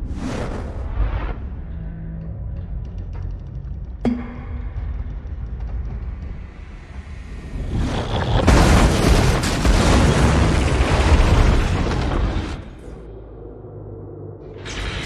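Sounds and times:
low rumble: 0.0 - 15.0
crash of tearing metal and debris: 8.3 - 12.8.

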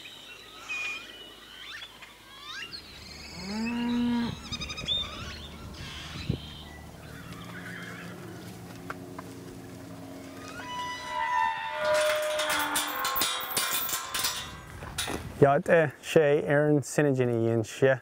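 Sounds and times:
birds chirping: 0.0 - 14.5
cow mooing: 3.3 - 8.7, 9.9 - 13.6.

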